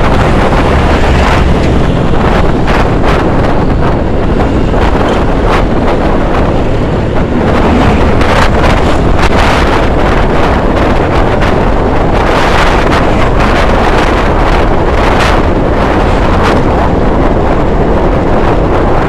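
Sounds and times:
road and traffic noise: 0.0 - 19.0
wind buffeting microphone: 0.0 - 19.0.

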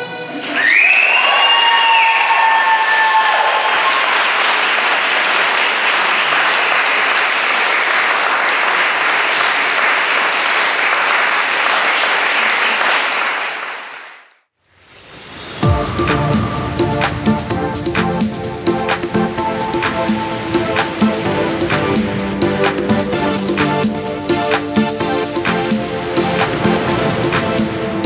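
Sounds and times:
music: 0.0 - 1.9, 14.9 - 28.0
audience applauding: 0.3 - 14.3.

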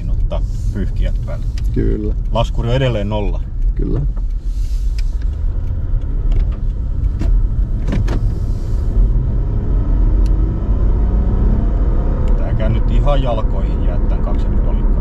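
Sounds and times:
car engine in cabin: 0.0 - 15.0
road rumble: 0.0 - 15.0.

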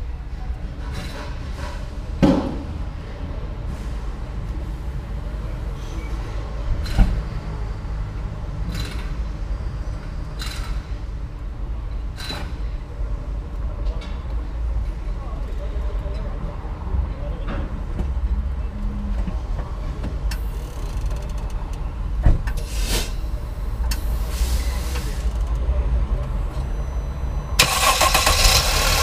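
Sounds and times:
road and tyre rumble: 0.0 - 29.0
suspension clunks: 27.6 - 29.0.

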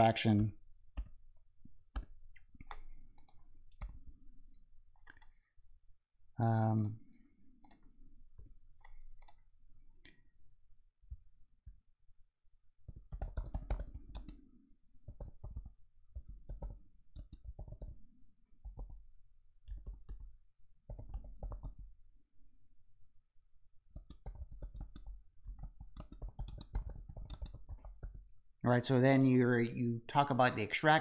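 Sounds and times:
keyboard typing clicks: 7.6 - 9.4, 12.9 - 14.4, 15.0 - 18.0, 19.7 - 21.9, 23.9 - 28.2.

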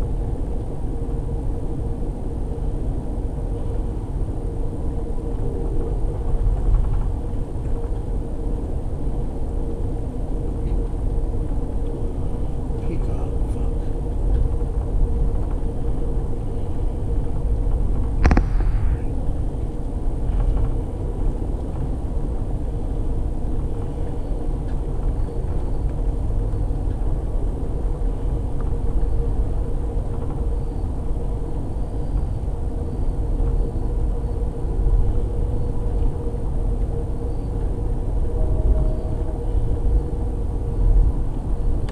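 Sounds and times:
constant hum: 0.0 - 41.9
train wheels rumbling on track: 0.0 - 41.9
sharp knock: 18.2 - 19.0.

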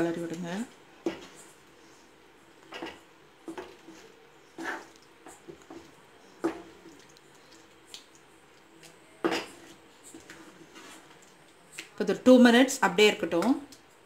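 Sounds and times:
wooden spatula scraping frying pan: 1.0 - 1.6, 2.6 - 6.9, 9.2 - 11.2.

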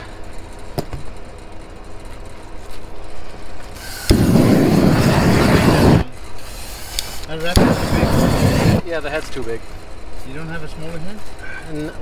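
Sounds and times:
propane torch roaring: 0.0 - 12.0
sharp clicks: 6.9 - 7.7.

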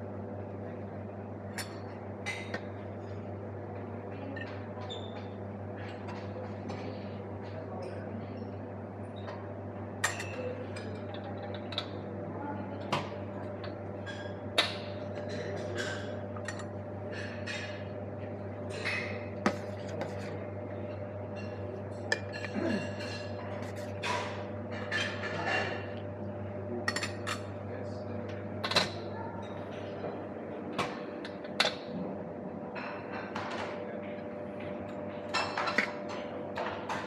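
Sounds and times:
steady hum: 0.0 - 37.0
utensils clinking on dishes: 1.5 - 3.1, 9.2 - 12.1, 12.8 - 17.9, 18.6 - 26.0, 26.8 - 27.6, 28.6 - 30.2, 30.8 - 32.0, 32.7 - 37.0.

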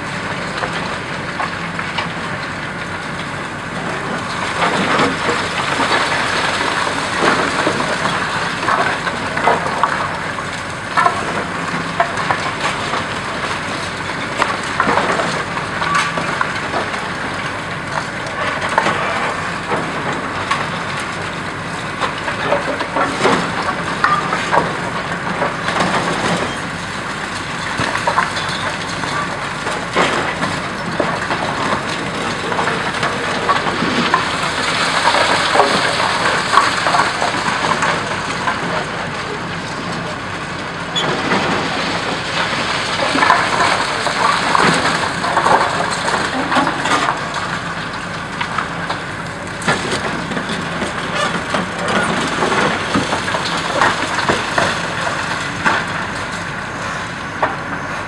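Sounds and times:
excavator running: 0.0 - 58.0
concrete cracking and snapping: 0.4 - 57.7
rubble falling: 27.6 - 38.8.

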